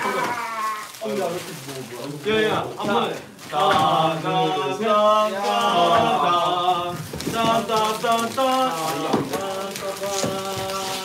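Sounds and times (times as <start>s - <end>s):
bubble wrap crackling: 0.0s - 11.0s
male voices chanting: 2.3s - 11.0s.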